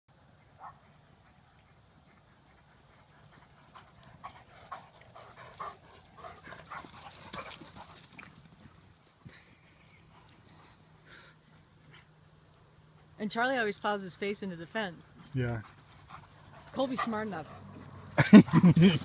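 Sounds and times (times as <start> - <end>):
dogs whining and yipping: 4.2 - 8.4, 15.0 - 19.0.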